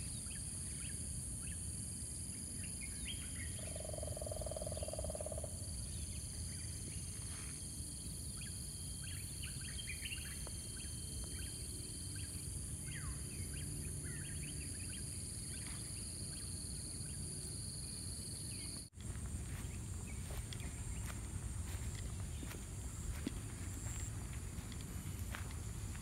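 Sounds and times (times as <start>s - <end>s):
high-pitched insect drone: 3.2s - 26.0s
birds chirping: 19.5s - 26.0s.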